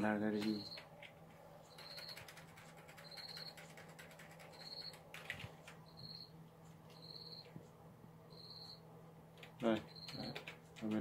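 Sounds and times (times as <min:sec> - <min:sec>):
low steady hum: 0:00.0 - 0:11.0
cricket chirping: 0:01.7 - 0:02.2, 0:05.9 - 0:06.3, 0:07.0 - 0:07.5, 0:08.3 - 0:08.8, 0:09.9 - 0:10.3.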